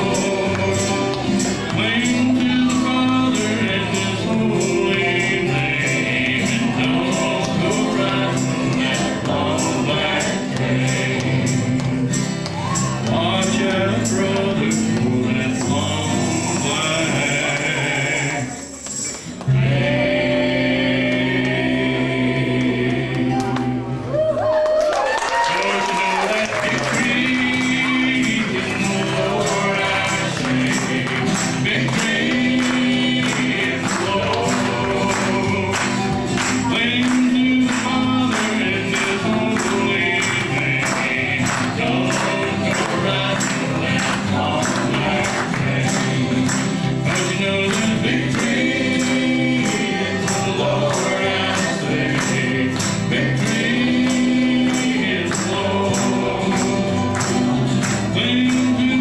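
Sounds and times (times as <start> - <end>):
strummed acoustic guitars: 0.0 - 24.2, 25.5 - 59.0
voices singing together: 0.0 - 24.4, 25.2 - 59.0.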